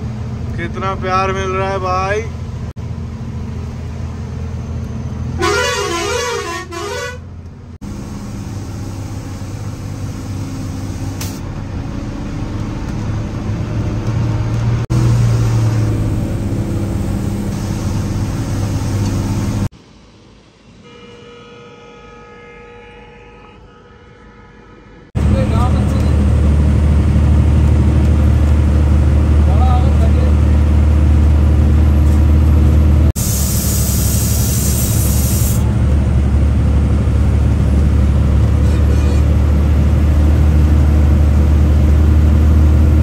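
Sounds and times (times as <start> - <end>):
truck engine running: 0.0 - 19.7, 25.2 - 43.0
truck horn multi-note pattern: 5.4 - 7.3, 20.8 - 25.1.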